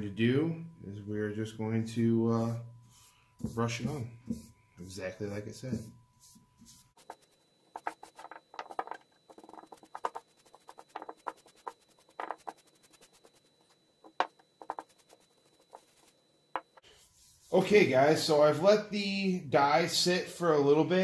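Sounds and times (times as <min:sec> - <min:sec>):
paintbrush scratching on wood: 0:02.9 - 0:16.2, 0:16.9 - 0:17.8.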